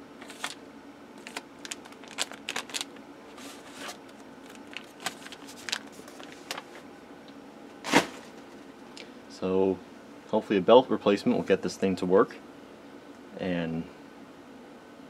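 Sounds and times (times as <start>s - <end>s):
faint steady hum: 0.0s - 15.0s
plastic and cardboard crinkling: 0.2s - 0.6s, 1.2s - 6.9s.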